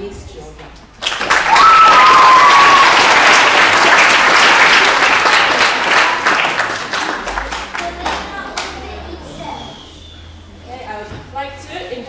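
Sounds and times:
children applauding: 1.0s - 9.0s.

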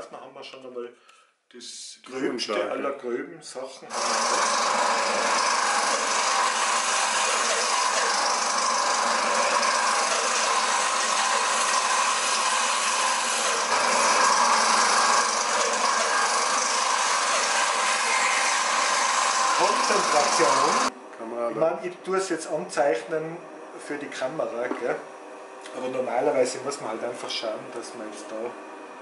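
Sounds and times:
bandsaw cutting wood: 3.9s - 20.9s.

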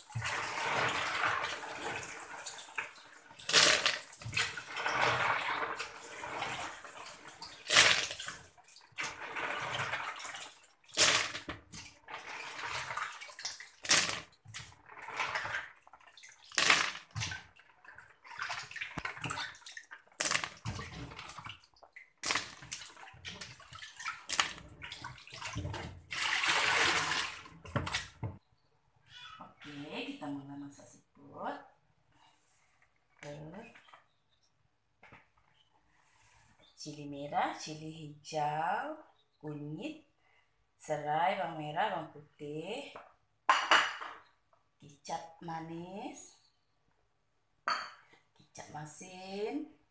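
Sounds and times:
water splashing in a basin: 0.0s - 28.4s.

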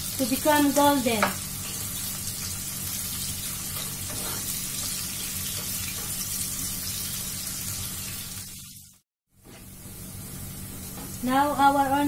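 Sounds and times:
onions sizzling in a frying pan: 0.0s - 12.0s
spatula stirring in a pan: 1.3s - 7.1s.

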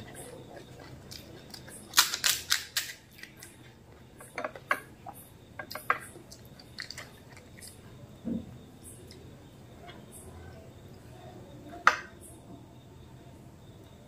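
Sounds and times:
crisp fried shells cracking: 0.8s - 3.6s.

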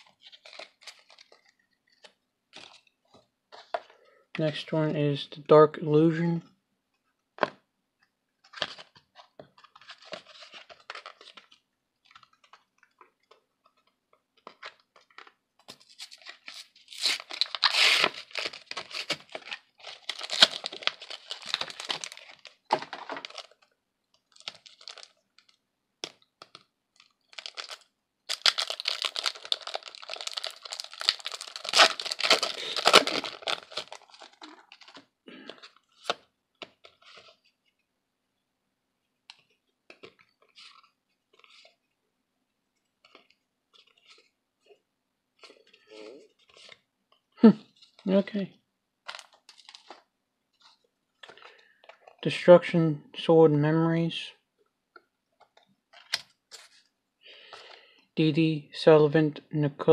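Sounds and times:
foil wrapper crinkling and tearing: 0.0s - 1.6s, 14.6s - 25.6s, 26.4s - 36.2s, 49.0s - 52.3s.

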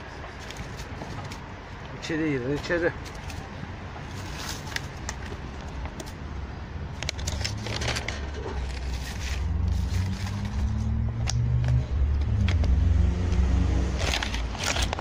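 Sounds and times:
vehicle engine humming: 0.0s - 15.0s
dry leaves rustling: 2.4s - 5.4s, 7.3s - 10.9s
plastic bag crackling: 13.9s - 15.0s.

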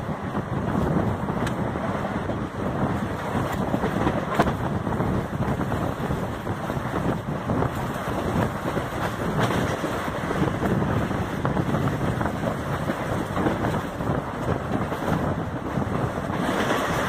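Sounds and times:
train wheels rumbling on track: 0.0s - 17.0s
wind rushing over microphone: 0.0s - 17.0s.

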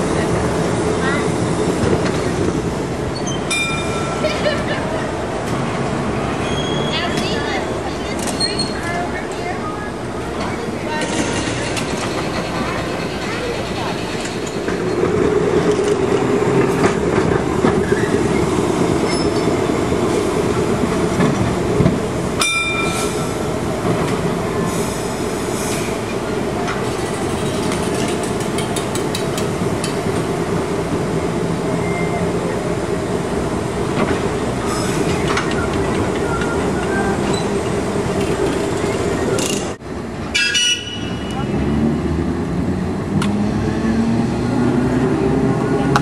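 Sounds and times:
streetcar rumble and motor hum: 0.0s - 46.0s
wheels clicking over rail joints: 10.3s - 20.1s, 26.1s - 30.3s, 33.8s - 41.4s
sharp metallic ding: 22.4s - 23.1s.

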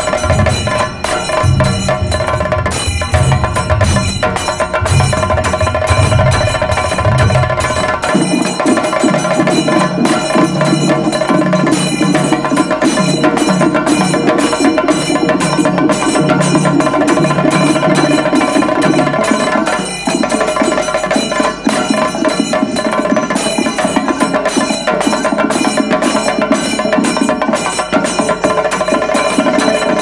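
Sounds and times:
fast drum strokes: 0.0s - 30.0s.

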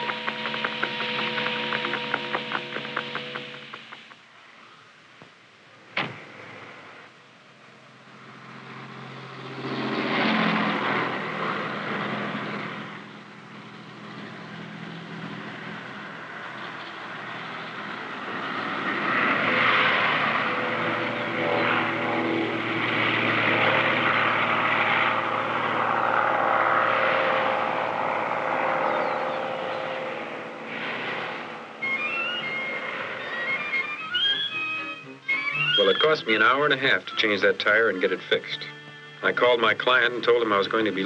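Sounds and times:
propeller airplane drone: 0.0s - 5.1s, 5.7s - 41.0s
highway traffic passing: 0.0s - 41.0s.

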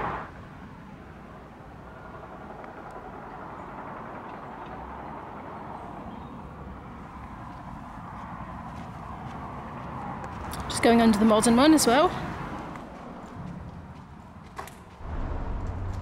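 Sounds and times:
distant road traffic hum: 0.0s - 16.0s.

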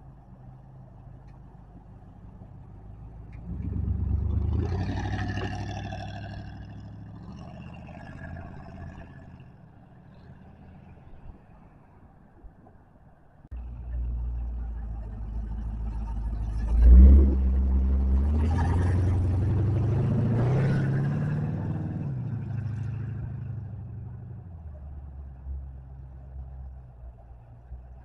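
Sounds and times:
pickup truck engine revving: 3.3s - 9.5s, 13.5s - 24.8s.

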